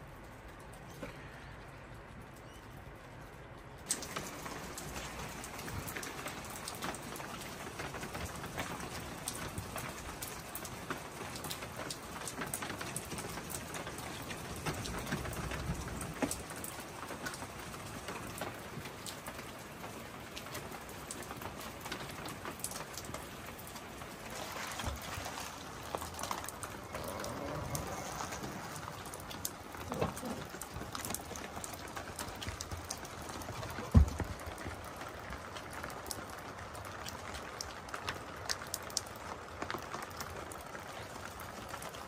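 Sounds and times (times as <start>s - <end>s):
rain pattering: 0.0s - 42.0s
raindrop ticks: 0.0s - 42.0s.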